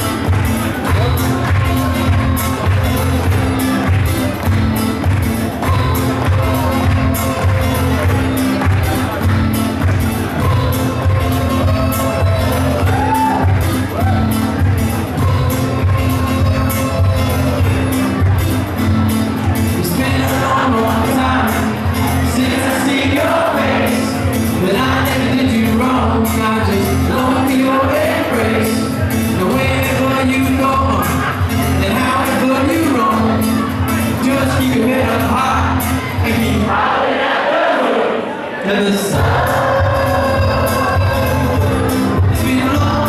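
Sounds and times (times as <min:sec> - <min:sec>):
live band music: 0:00.0 - 0:36.5, 0:39.1 - 0:43.0
man singing into a microphone: 0:19.7 - 0:36.9, 0:38.6 - 0:43.0.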